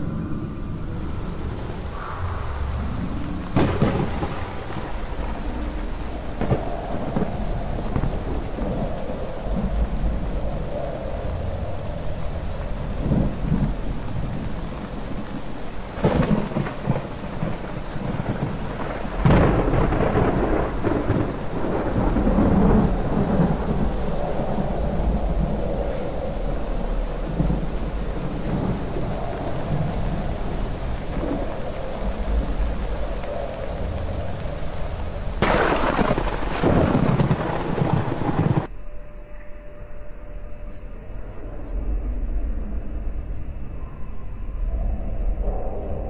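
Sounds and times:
rumbling thunder: 0.0s - 38.7s
steady rain: 0.0s - 38.7s
sharp thunderclaps: 1.3s - 10.7s, 12.8s - 38.7s.

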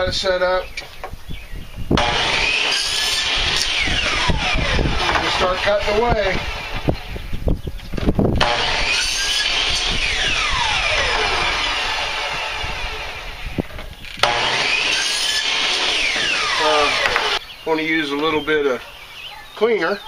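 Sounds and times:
miter saw motor whine: 1.9s - 7.4s, 8.4s - 17.5s.

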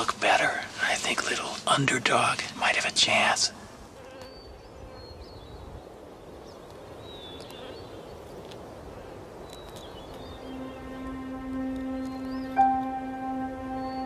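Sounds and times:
steady hiss: 0.0s - 4.0s
soft music with low note: 10.3s - 14.0s.

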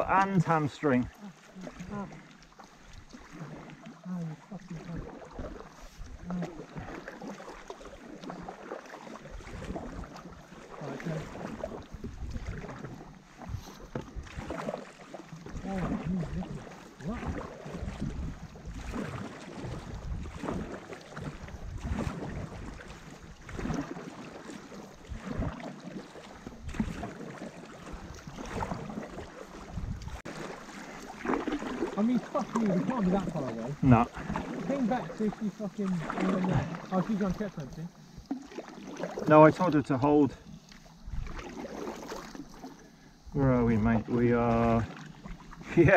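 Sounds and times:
paddle blades pulling through water: 0.0s - 45.9s
water splashing: 0.0s - 45.9s
water washing past board: 5.0s - 37.5s
wind rumble on microphone: 5.8s - 6.5s, 11.5s - 14.7s, 15.4s - 24.0s, 26.5s - 27.2s, 27.9s - 30.3s, 41.0s - 41.6s.

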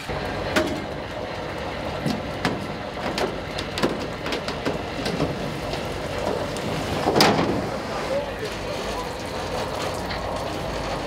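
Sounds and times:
steady machinery noise: 0.0s - 11.0s
knocks and clatters: 1.9s - 7.8s.

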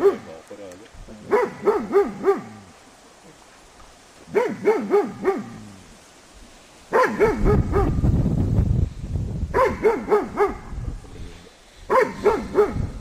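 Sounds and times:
dog barking: 0.0s - 0.4s, 1.3s - 2.7s, 4.3s - 5.6s, 6.9s - 8.0s, 9.5s - 10.8s, 11.9s - 13.0s.

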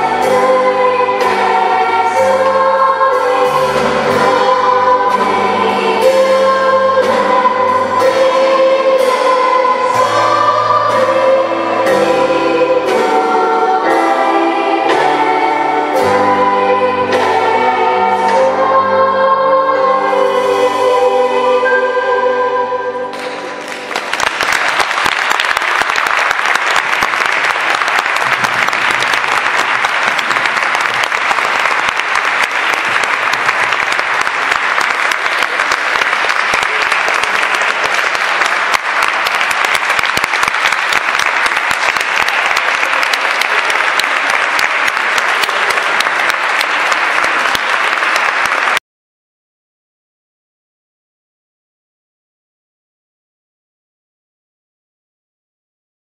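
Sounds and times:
audience applauding: 23.2s - 48.8s.

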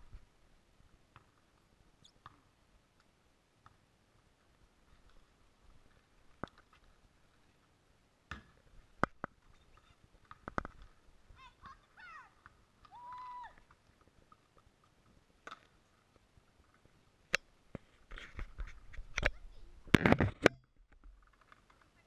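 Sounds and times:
basketball bouncing on concrete: 8.3s - 9.2s.

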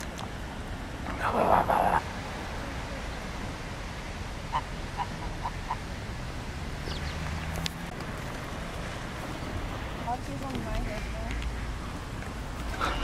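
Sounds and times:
waterfowl calling: 4.4s - 6.0s, 12.7s - 13.0s.

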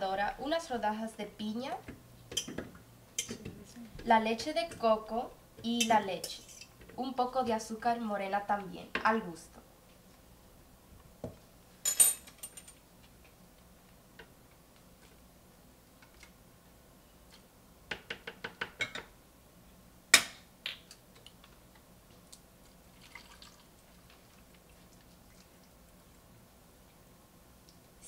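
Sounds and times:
liquid pouring into blender jar: 23.0s - 23.7s.

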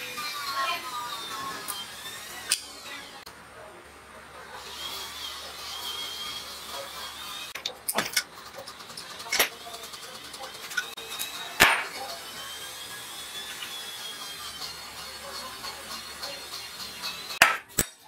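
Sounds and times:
metal engine parts clinking: 7.6s - 12.3s, 13.5s - 18.0s.

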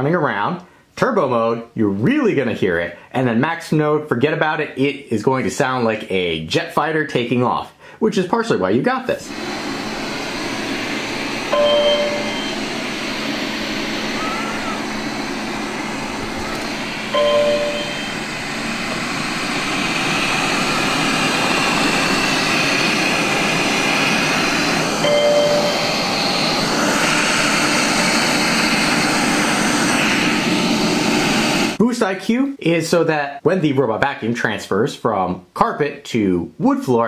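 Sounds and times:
robot vacuum fan rushing: 9.2s - 31.8s
short electronic beep: 11.5s - 12.6s, 17.1s - 18.2s, 25.0s - 26.0s.

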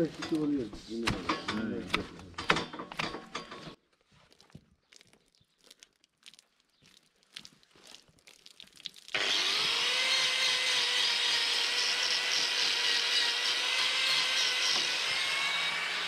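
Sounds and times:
grinder disc grinding hoof: 0.0s - 3.8s, 9.1s - 16.0s
angle grinder whining: 9.1s - 16.0s.

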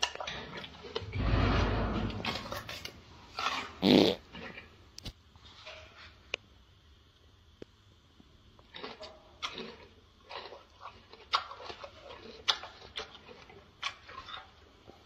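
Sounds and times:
gorilla chewing wet crunches: 2.3s - 4.7s, 8.6s - 15.0s.

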